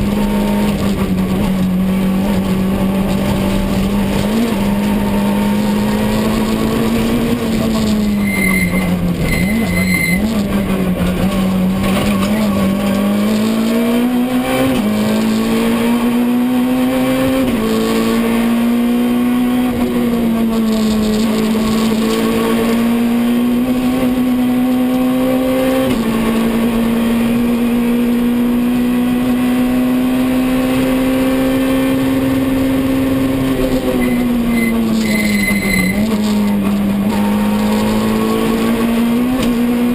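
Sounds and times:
car engine at speed: 0.0s - 39.9s
short high beeps: 7.9s - 10.4s, 33.8s - 36.5s.

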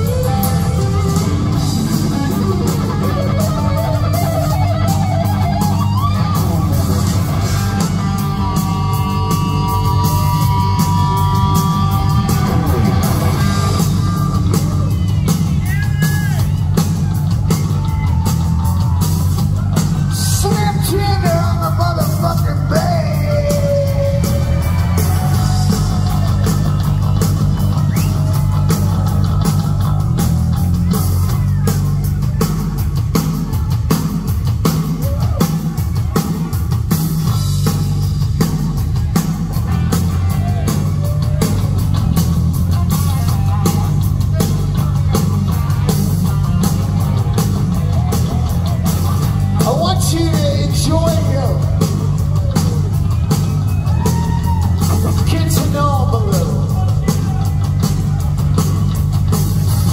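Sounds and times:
live hard rock band: 0.0s - 59.9s
man singing: 20.1s - 26.0s, 49.5s - 51.8s, 54.9s - 57.5s.

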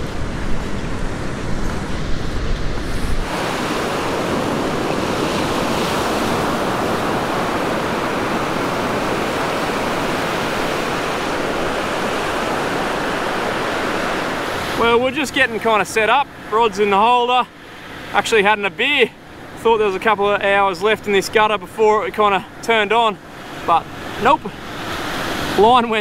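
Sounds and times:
wind rumbling on microphone: 0.0s - 14.8s
surf breaking on beach: 0.0s - 26.0s.

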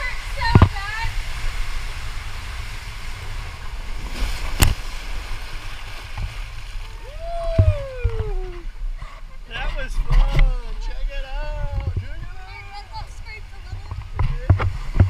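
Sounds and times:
water rushing down slide: 0.0s - 8.8s
wind on microphone: 0.0s - 9.1s, 9.8s - 15.0s.

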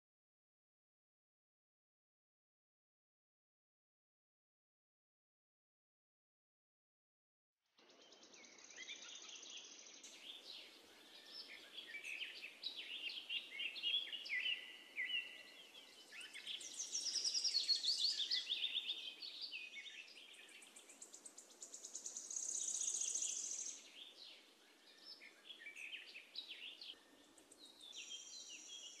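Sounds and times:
small birds chirping and trilling: 7.8s - 29.0s
steady background hiss: 8.2s - 29.0s.

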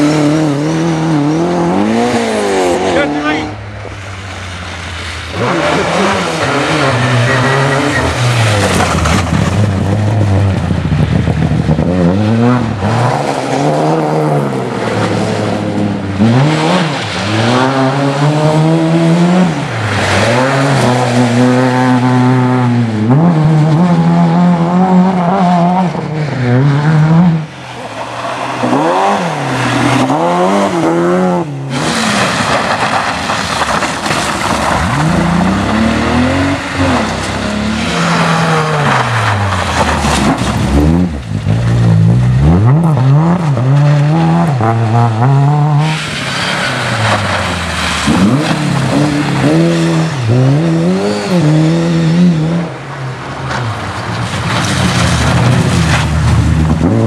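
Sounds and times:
rally car engine revving: 0.0s - 57.0s.

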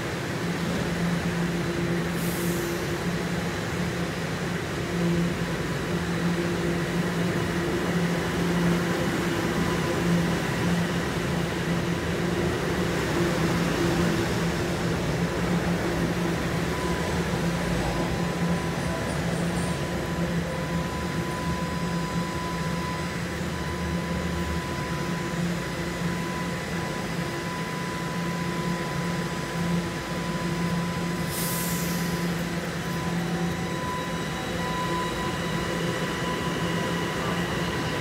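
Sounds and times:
subway train rumble and hum: 0.0s - 38.0s.

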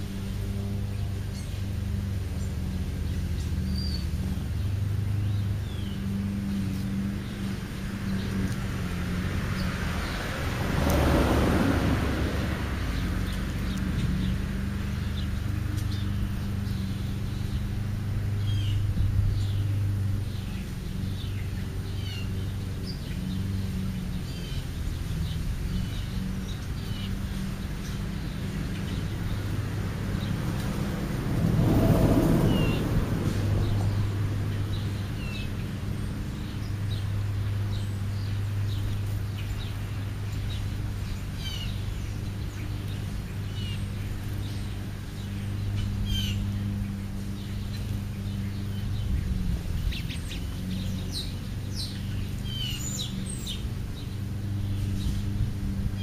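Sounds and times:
small birds chirping: 0.0s - 11.4s, 12.2s - 56.0s
low motor hum: 0.0s - 56.0s
vehicle passing: 0.0s - 56.0s.

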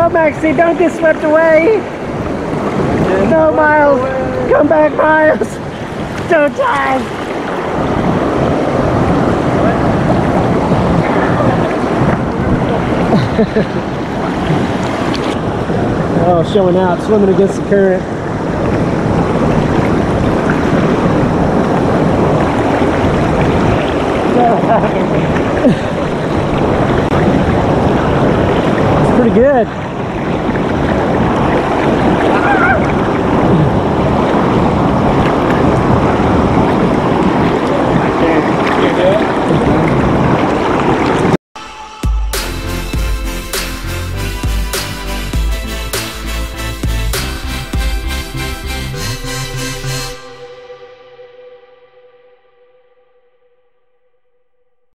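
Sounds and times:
fast water current: 0.0s - 41.4s
waterfall rushing: 0.0s - 43.1s.

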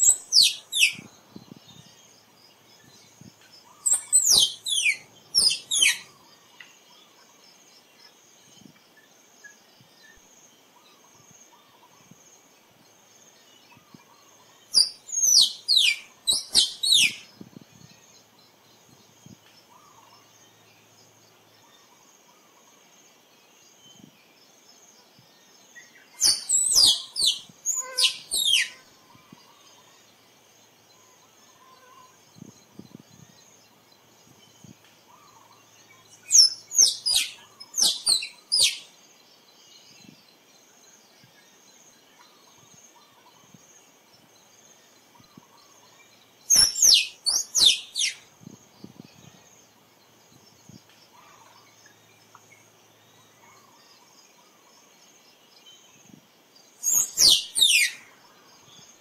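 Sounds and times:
squirrel chirping: 0.0s - 1.1s, 3.8s - 6.1s, 14.8s - 17.2s, 26.2s - 28.8s, 36.2s - 38.9s, 46.5s - 48.2s, 56.8s - 58.0s.

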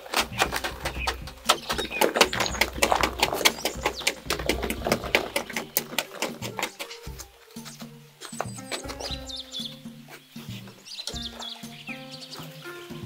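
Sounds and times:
sharp clicks and knocks: 0.0s - 7.3s.

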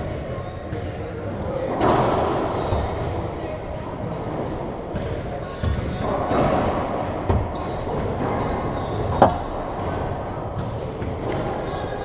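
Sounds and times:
shoe squeaks on hardwood: 7.4s - 9.5s, 10.9s - 12.0s.

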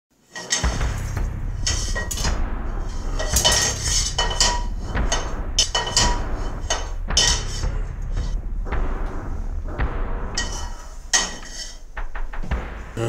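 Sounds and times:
metal pots and pans clattering: 0.3s - 8.4s, 10.4s - 11.8s
steady low hum: 0.6s - 13.0s.

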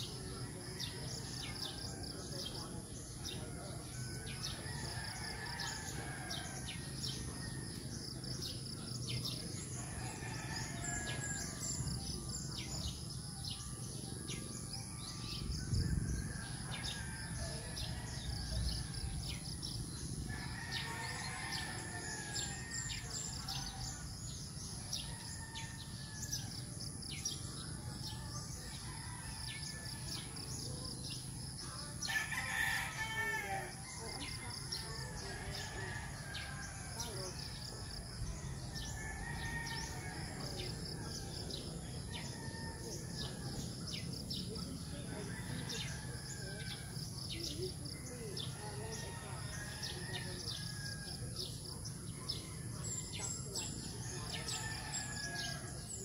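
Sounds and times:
rooster crowing: 32.0s - 37.1s, 38.4s - 41.0s.

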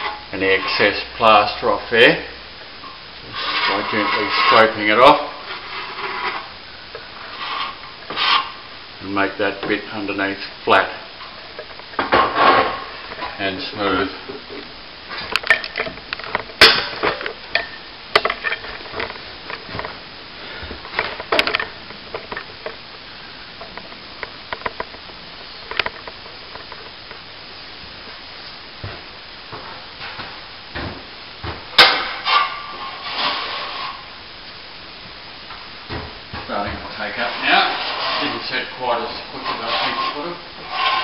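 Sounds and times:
trowel scraping cement: 3.3s - 6.5s, 37.2s - 41.0s.

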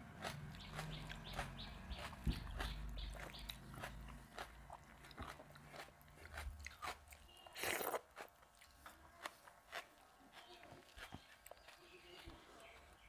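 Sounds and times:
fingers mixing wet rice: 0.0s - 13.0s
chewing: 0.1s - 13.0s.

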